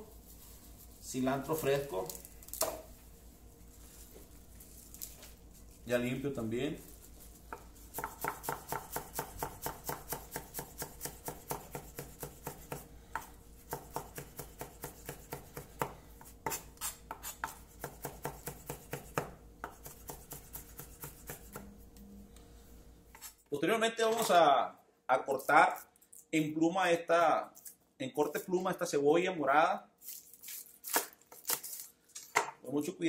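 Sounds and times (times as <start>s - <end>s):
knife chopping on wooden board: 7.5s - 21.7s.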